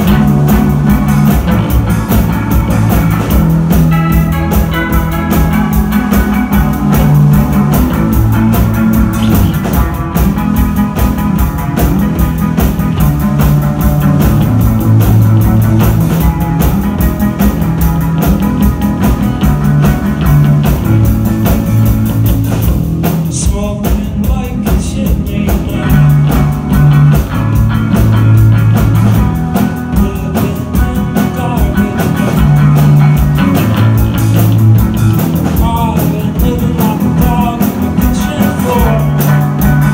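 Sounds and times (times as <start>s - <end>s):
bass guitar: 0.0s - 39.9s
drum kit: 0.0s - 39.9s
electric guitar: 0.0s - 39.9s.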